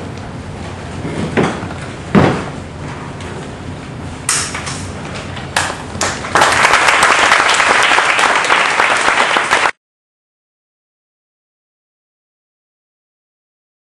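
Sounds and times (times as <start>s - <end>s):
audience applauding: 5.6s - 9.8s.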